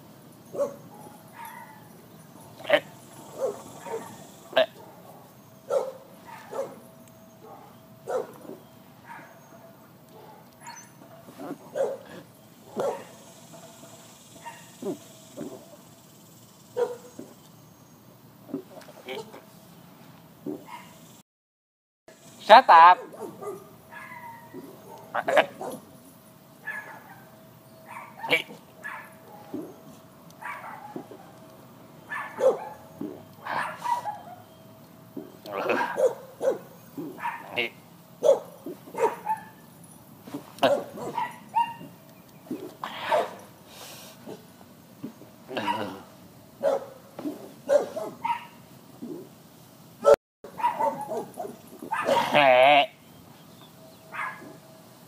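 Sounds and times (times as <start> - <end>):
dog barking and yipping: 0.5 - 13.2, 14.4 - 15.8, 16.8 - 17.3, 20.6 - 21.0, 22.8 - 25.9, 26.6 - 31.4, 32.0 - 34.6, 35.5 - 39.8, 40.6 - 43.5, 45.6 - 46.0, 46.6 - 49.2, 50.0 - 52.4, 54.1 - 54.6
person belching: 45.5 - 46.1, 52.2 - 53.0.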